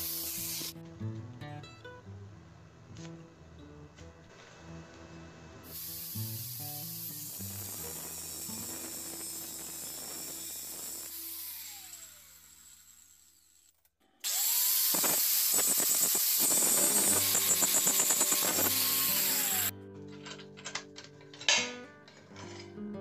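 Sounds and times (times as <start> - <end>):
angle grinder grinding steel: 0.0 - 0.8, 5.6 - 19.7.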